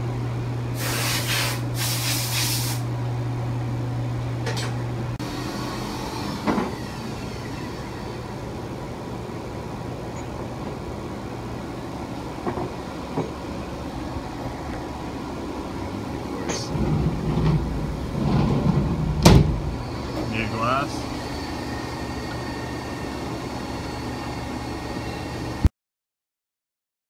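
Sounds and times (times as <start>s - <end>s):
short hiss: 0.8s - 2.8s
machine humming: 2.8s - 25.7s.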